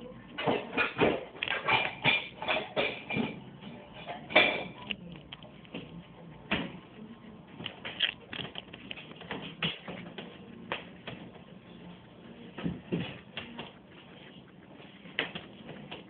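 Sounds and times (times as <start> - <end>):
guinea pig gnawing corn: 7.6 - 11.0.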